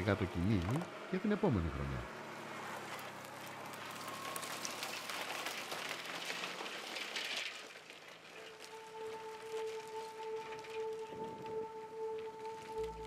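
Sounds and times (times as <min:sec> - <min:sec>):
low engine hum: 0:00.0 - 0:06.9, 0:08.2 - 0:13.0
stubble crackling under tyres: 0:00.0 - 0:13.0
steady held music tone: 0:08.4 - 0:13.0.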